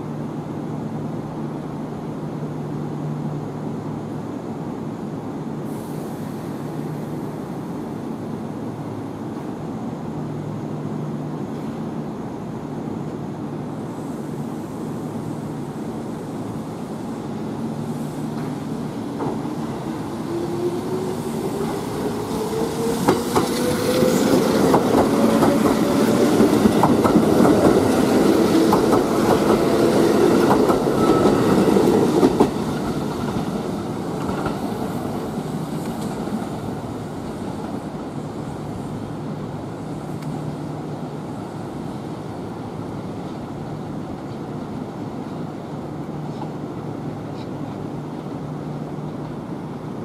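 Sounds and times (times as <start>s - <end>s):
electric train whine: 0.0s - 46.1s
train wheels clicking over joints: 20.8s - 36.4s.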